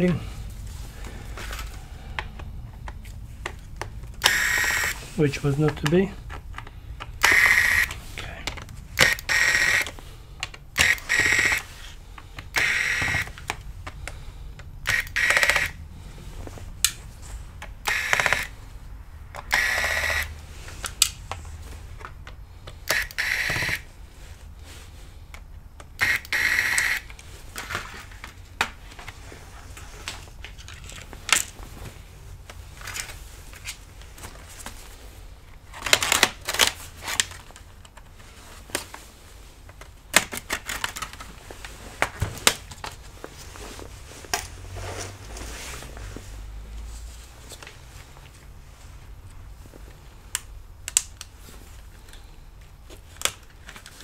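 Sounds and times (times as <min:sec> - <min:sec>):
screwdriver work: 0:04.2 - 0:05.0, 0:06.6 - 0:08.0, 0:09.0 - 0:09.9, 0:10.8 - 0:11.7, 0:12.5 - 0:13.4, 0:14.8 - 0:15.8, 0:17.8 - 0:18.5, 0:19.4 - 0:20.3, 0:22.9 - 0:23.8, 0:26.0 - 0:27.1
plastic clips snapping: 0:50.4 - 0:51.3.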